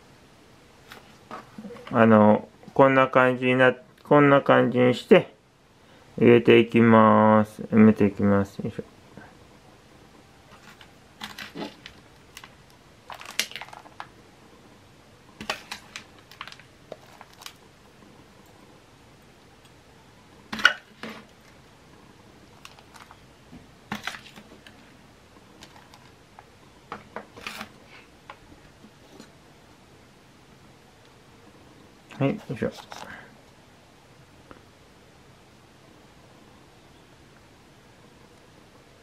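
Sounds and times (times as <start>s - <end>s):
spoon scraping potting mix: 15.4s - 17.7s, 23.9s - 24.9s, 32.1s - 33.2s.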